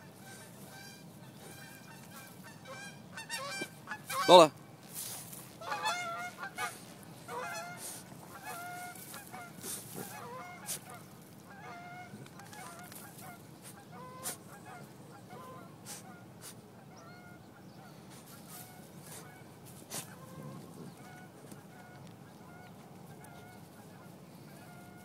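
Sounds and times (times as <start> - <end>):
dog claws scratching dirt: 4.9 - 11.4, 12.0 - 14.4, 18.1 - 23.8.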